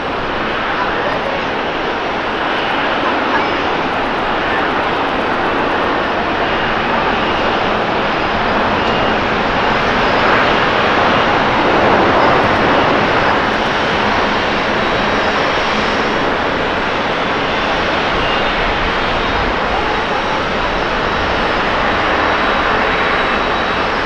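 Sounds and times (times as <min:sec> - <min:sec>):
jet engines rushing: 0:00.0 - 0:24.0.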